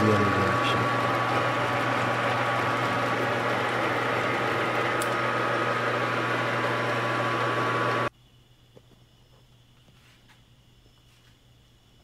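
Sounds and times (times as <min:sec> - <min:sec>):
lathe mechanical hum and whine: 0:00.0 - 0:08.1.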